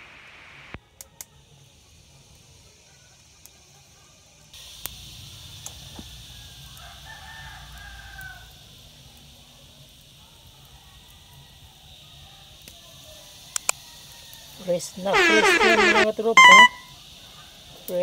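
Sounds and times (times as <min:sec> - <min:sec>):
steady low hiss: 0:00.0 - 0:18.0
faint rooster crowing: 0:06.1 - 0:08.9, 0:13.7 - 0:17.7.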